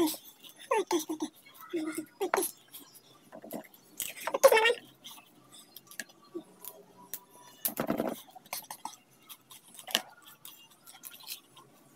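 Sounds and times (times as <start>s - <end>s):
person chewing: 8.4s - 11.8s.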